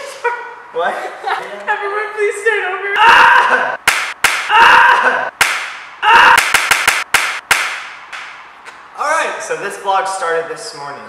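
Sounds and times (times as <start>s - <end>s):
group shouting: 3.0s - 3.8s, 4.4s - 5.3s, 6.0s - 6.5s
hand claps: 3.8s - 4.5s, 5.4s - 5.8s, 6.4s - 8.8s.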